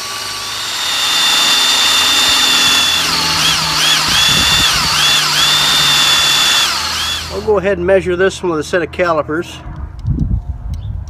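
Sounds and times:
drill motor whine: 0.0s - 7.5s.

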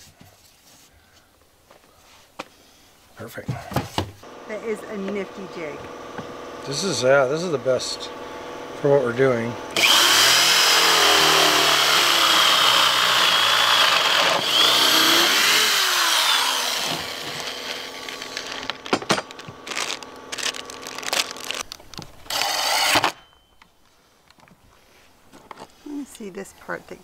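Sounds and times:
drill boring into wood: 9.7s - 21.6s, 22.3s - 23.2s
cordless drill driving screw: 9.8s - 18.8s, 22.3s - 23.2s.

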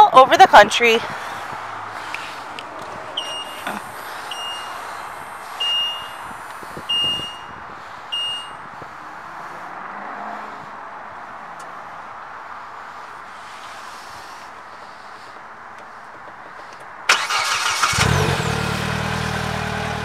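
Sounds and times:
high electronic beeps: 3.2s - 4.8s, 5.6s - 6.2s, 6.9s - 7.5s.

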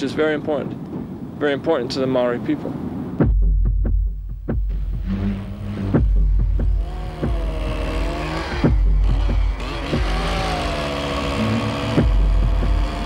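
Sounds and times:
machine engine running: 4.7s - 13.0s.

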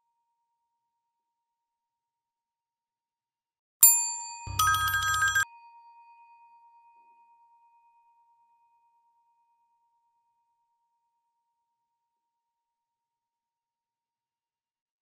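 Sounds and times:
electric bell ringing rapidly: 3.9s - 5.4s
high chime note: 4.5s - 5.4s.

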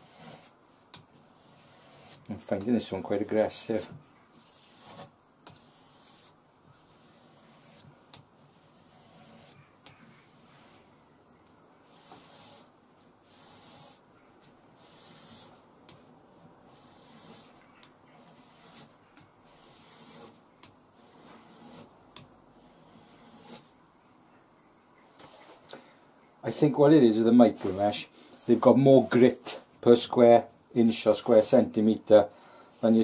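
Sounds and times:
knife scraping on abrasive paper: 0.0s - 0.5s, 1.1s - 2.3s, 4.3s - 10.9s, 11.8s - 14.0s, 14.8s - 15.6s, 16.7s - 20.4s, 21.0s - 22.0s, 22.6s - 23.7s, 27.5s - 29.6s.

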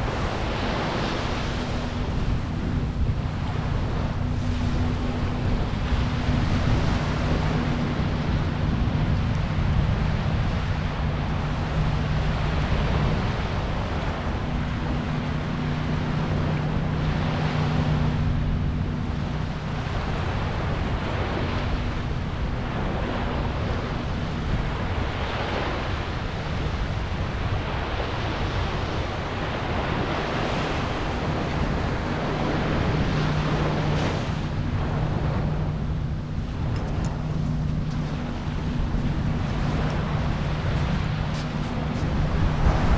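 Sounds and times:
small ocean waves washing ashore: 0.0s - 42.9s
steady low hum: 0.0s - 42.9s
wind on microphone: 0.0s - 42.9s.

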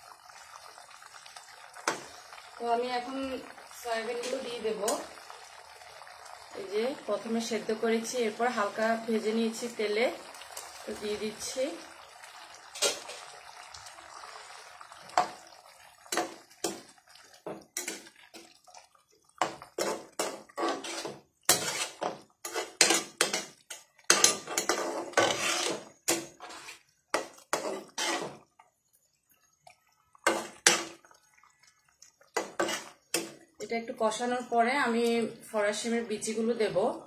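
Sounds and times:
spatula scraping metal pan: 19.4s - 28.4s, 30.2s - 30.9s, 32.4s - 33.3s.

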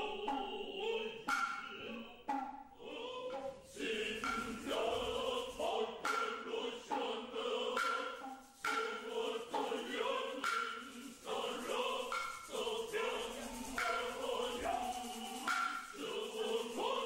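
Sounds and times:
male chorus chanting in unison: 0.0s - 17.0s
hand drum strikes: 4.2s - 6.4s, 12.1s - 16.0s.

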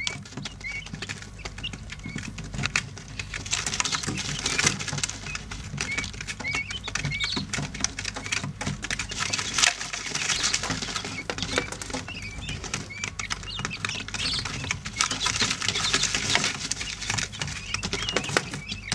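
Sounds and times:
chicks pecking in bedding: 0.0s - 18.9s
chicks peeping: 0.0s - 18.9s.

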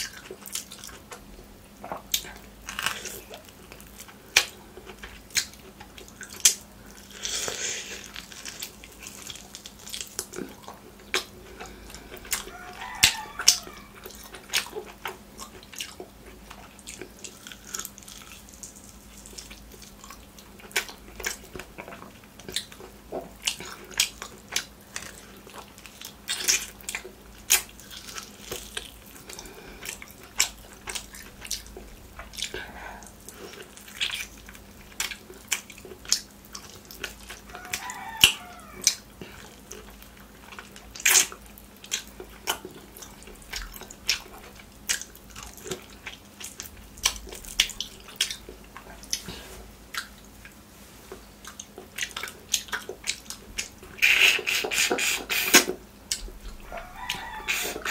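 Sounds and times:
wet chewing and lip-smacking: 0.0s - 57.9s
slurping meat off bone: 53.9s - 55.8s, 56.9s - 57.9s.

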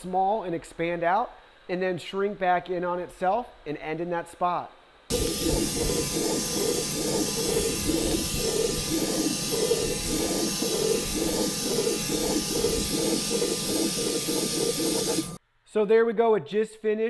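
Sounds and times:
robot vacuum running: 5.1s - 15.4s.

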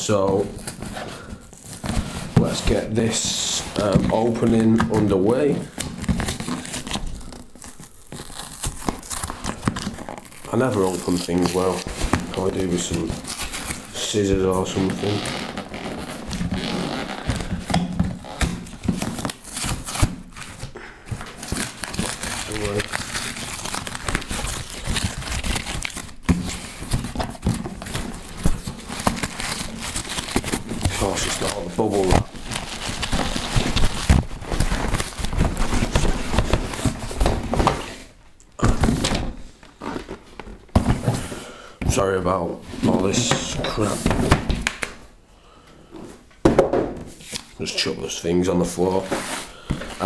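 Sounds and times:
knocks and thumps on wooden table: 46.4s - 47.1s.

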